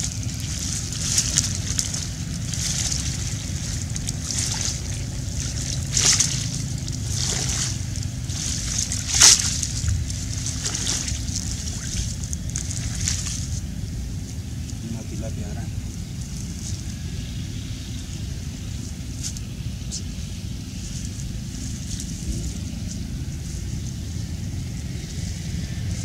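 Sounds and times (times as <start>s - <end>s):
water sloshing and splashing: 0.0s - 13.8s
low rumble: 0.0s - 26.0s.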